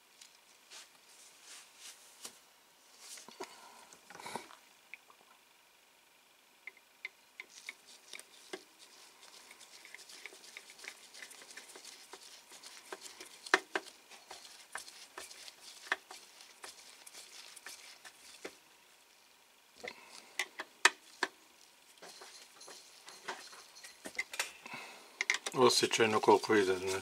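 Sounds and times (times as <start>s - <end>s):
gloved hands rustling plastic parts: 7.4s - 19.0s, 19.8s - 27.0s.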